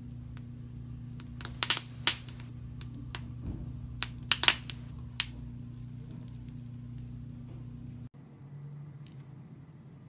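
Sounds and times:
steady low hum: 0.0 - 10.0
slime popping and crackling: 1.2 - 3.3, 4.0 - 7.1.

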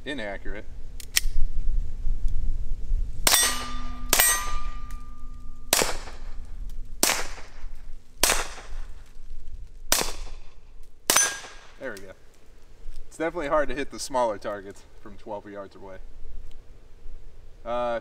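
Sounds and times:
metallic target clang: 3.2 - 8.9, 11.1 - 11.8
pistol shots cracking: 3.3 - 9.0, 9.9 - 11.8.

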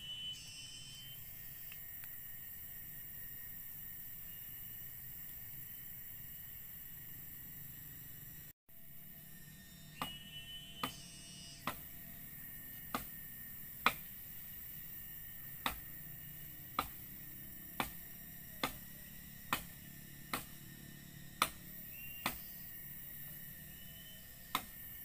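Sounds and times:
machete chopping grass: 12.9 - 13.2, 15.6 - 15.9, 16.7 - 17.0, 17.8 - 18.9, 19.5 - 20.6, 21.4 - 21.6, 22.2 - 22.5, 24.5 - 24.8.

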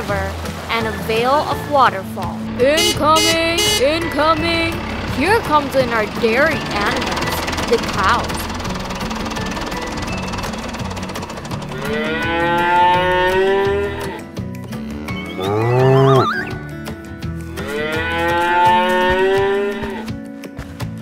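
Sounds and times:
cows mooing: 11.5 - 16.6, 17.5 - 20.1.

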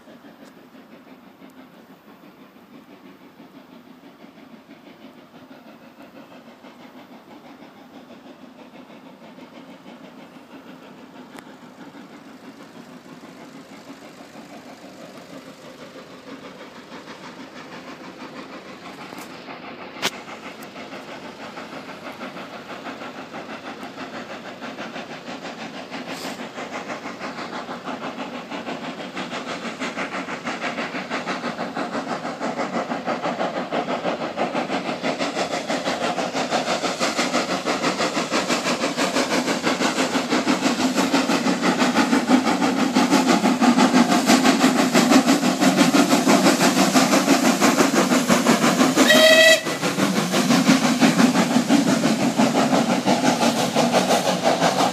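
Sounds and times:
steam locomotive exhaust beats: 0.0 - 54.9.

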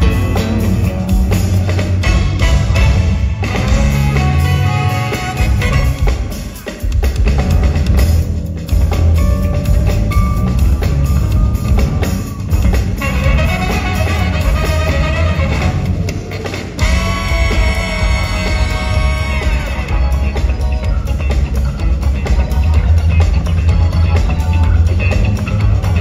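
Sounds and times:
bass guitars playing: 0.0 - 26.0
drums and percussion: 0.0 - 26.0.

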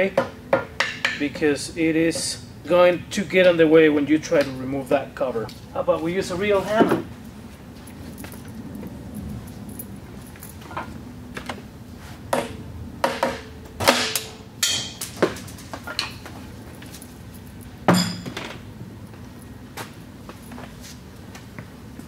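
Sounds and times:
hammer tapping on metal: 0.1 - 1.5.

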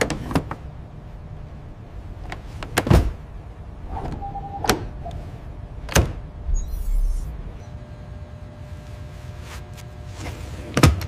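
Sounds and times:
short electronic beep: 4.2 - 5.2.

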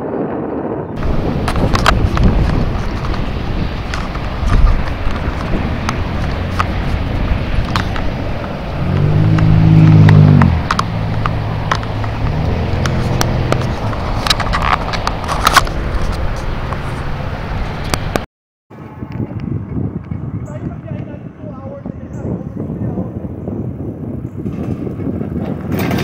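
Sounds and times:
bicycle tyre noise: 0.0 - 18.2
wind: 0.0 - 26.0
passing vehicle engine hum: 1.0 - 18.2.

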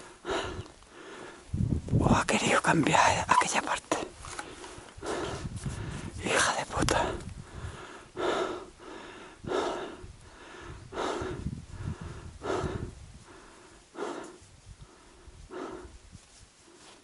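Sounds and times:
person breathing hard: 0.0 - 1.6, 4.4 - 17.0.

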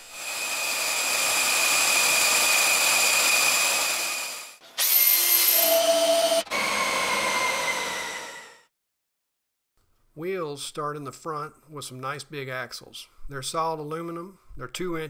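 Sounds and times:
cordless drill running: 0.0 - 8.6.

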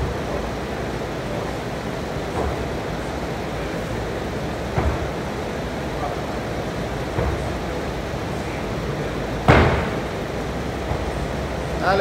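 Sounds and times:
steady background noise: 0.0 - 12.0
soft knocks: 2.3 - 2.8, 4.6 - 5.3, 7.1 - 7.6.

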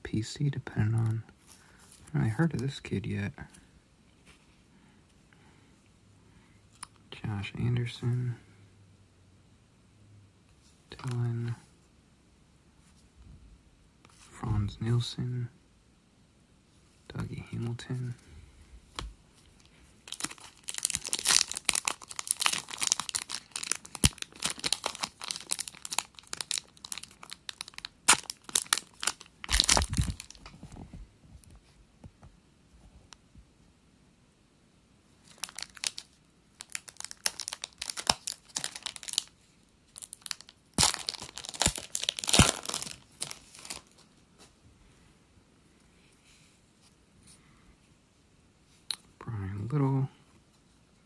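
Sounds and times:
foil wrapper tearing and crinkling: 20.1 - 30.4, 35.3 - 39.3, 39.9 - 44.0.

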